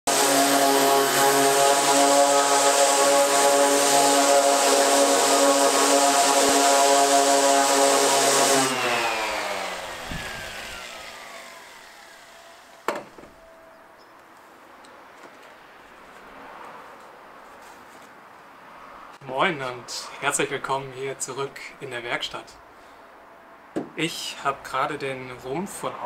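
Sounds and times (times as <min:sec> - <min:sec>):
orbital sander running: 0:00.1 - 0:12.9
sander winding down whine: 0:00.1 - 0:12.9.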